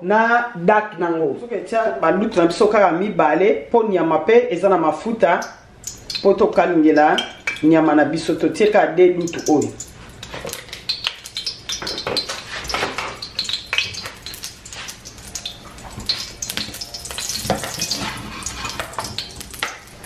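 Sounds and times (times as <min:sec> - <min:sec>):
oil crackling and popping in a wok: 0:05.4 - 0:20.0.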